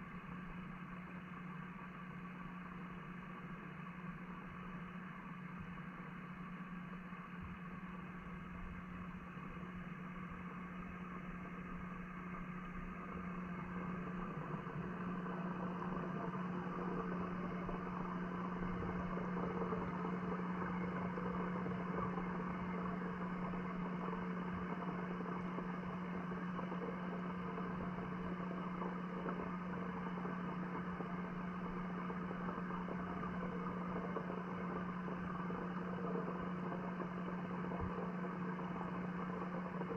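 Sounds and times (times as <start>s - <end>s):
low underwater hum: 0.0s - 39.9s.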